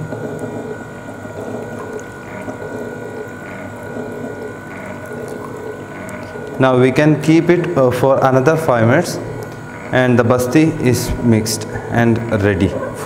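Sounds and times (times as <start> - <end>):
electric mixer humming: 0.0 - 13.0.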